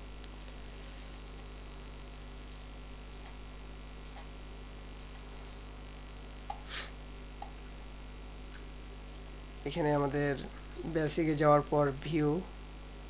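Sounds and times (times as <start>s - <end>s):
electrical mains hum: 0.0s - 13.0s
noisy puff: 0.5s - 1.3s, 6.5s - 7.0s
faint clicks: 2.5s - 3.4s, 4.0s - 4.3s.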